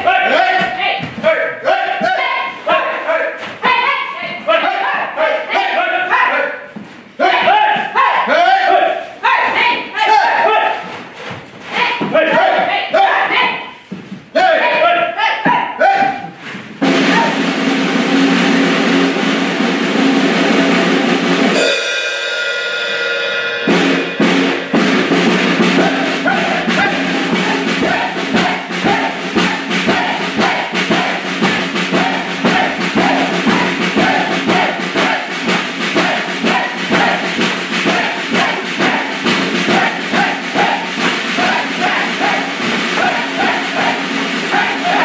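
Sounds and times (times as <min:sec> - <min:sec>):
steady drum beat: 0:00.0 - 0:45.0
held musical notes: 0:16.8 - 0:45.0.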